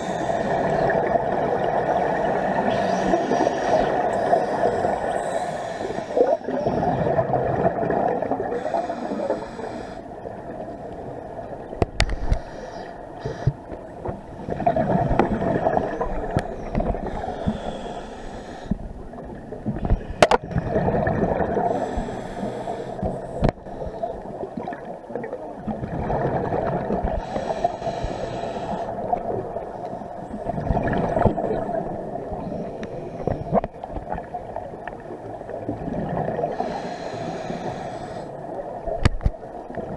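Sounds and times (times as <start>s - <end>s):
regulator inhalation hiss: 0.0s - 0.8s, 2.8s - 6.4s, 8.6s - 10.1s, 12.1s - 13.6s, 16.6s - 18.8s, 21.7s - 24.1s, 27.2s - 29.0s, 36.5s - 38.3s
regulator bubbles gurgling: 0.0s - 9.5s, 13.2s - 17.8s, 18.7s - 37.6s.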